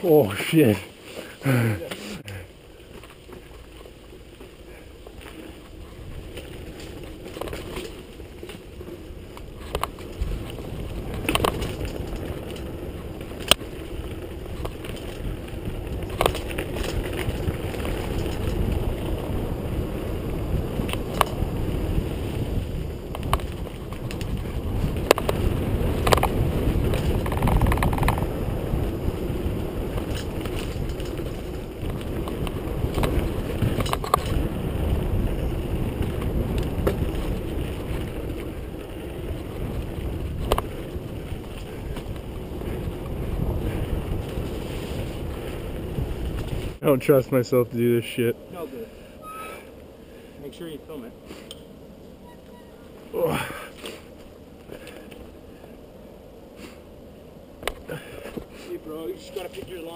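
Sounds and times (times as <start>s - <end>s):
bike tyre rumble: 0.0s - 59.9s
bike knocks and rattles: 4.4s - 19.4s, 22.5s - 46.8s
wind rush on microphone: 9.0s - 46.8s.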